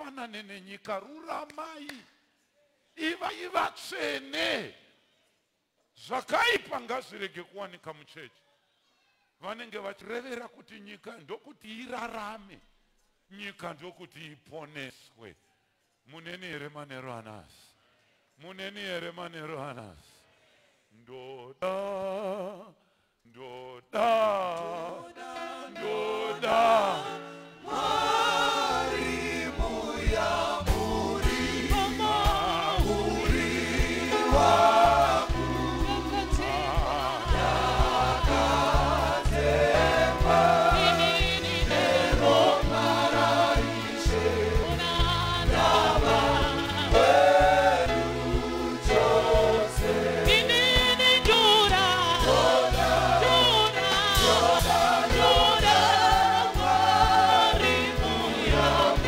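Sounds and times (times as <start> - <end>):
gospel choir singing: 23.4 - 59.0.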